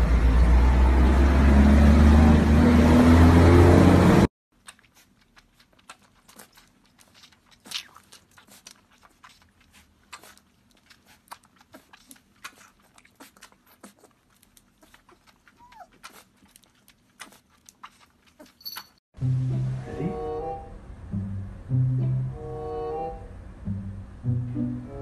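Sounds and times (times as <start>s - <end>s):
puppy sucking from bottle: 4.6s - 19.0s.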